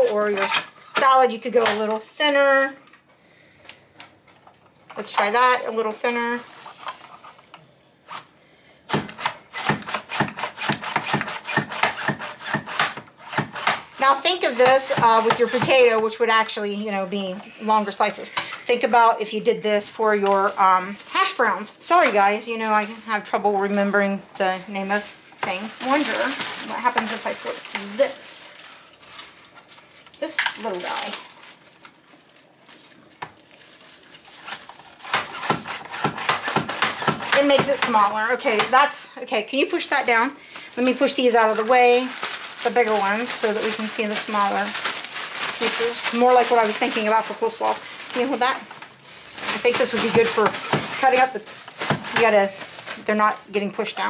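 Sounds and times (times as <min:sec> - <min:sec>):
carrots scraping through mandoline: 0:34.3 - 0:37.6.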